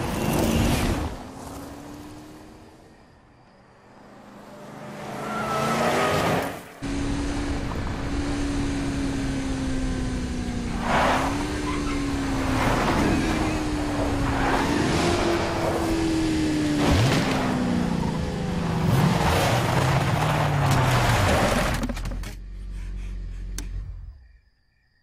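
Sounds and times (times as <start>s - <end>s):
tyre and road noise whoosh: 0.0s - 2.7s, 10.5s - 21.9s
car engine high-revving drone: 3.9s - 24.2s.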